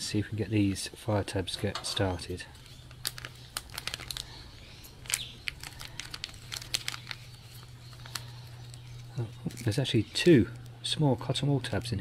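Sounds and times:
low steady hum: 0.0s - 12.0s
plastic packet crinkling: 2.5s - 12.0s.

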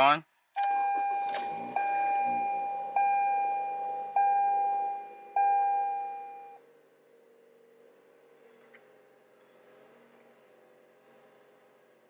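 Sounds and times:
dashboard warning chime: 0.6s - 6.6s.

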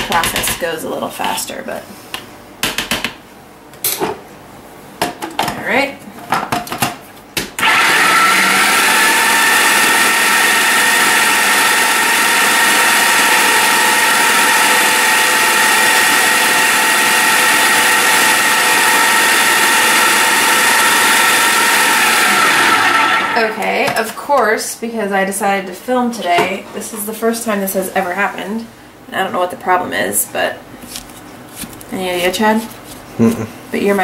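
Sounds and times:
food processor whirring: 7.6s - 23.7s.

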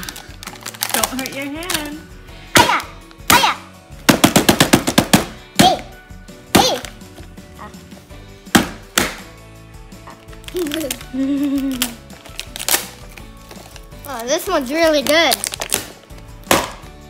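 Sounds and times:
hands smashing paper lids: 0.0s - 3.4s, 4.0s - 5.9s, 8.5s - 9.3s, 10.2s - 16.9s.

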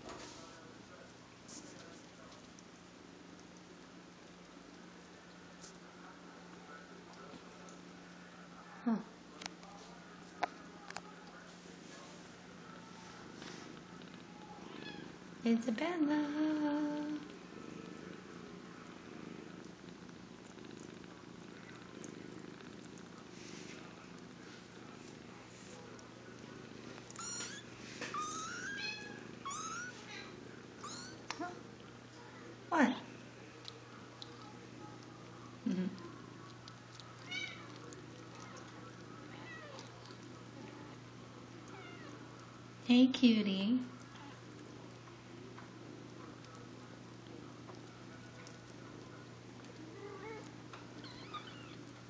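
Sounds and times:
cats purring: 0.0s - 42.9s, 43.8s - 52.0s
kittens mewing: 27.1s - 31.6s.

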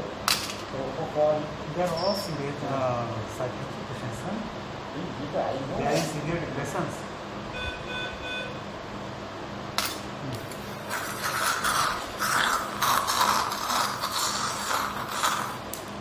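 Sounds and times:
patient monitor beeps: 7.5s - 8.6s
suction tube hissing and slurping: 10.8s - 15.8s.

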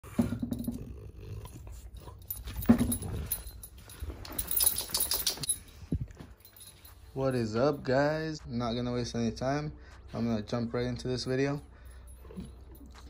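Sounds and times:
dog making low vocal sounds: 0.6s - 2.3s.

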